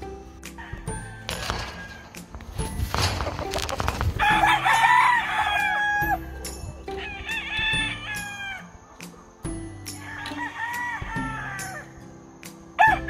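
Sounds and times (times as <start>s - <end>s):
rooster crowing: 0.5s - 2.2s, 4.2s - 8.9s, 9.9s - 12.0s, 12.8s - 13.0s.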